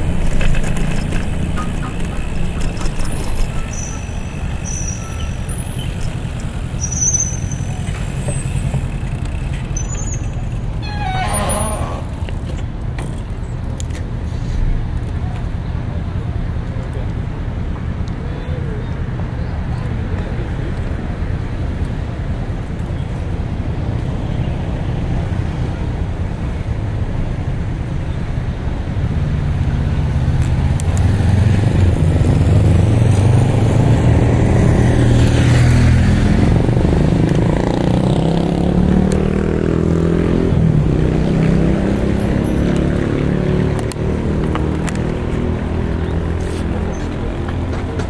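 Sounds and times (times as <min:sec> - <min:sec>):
wind and road rush: 0:00.0 - 0:48.0
vehicle engine passing: 0:29.4 - 0:48.0.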